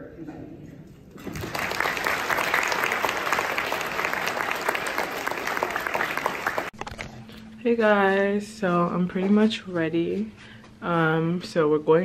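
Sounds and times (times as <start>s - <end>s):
audience applauding: 1.2s - 6.8s.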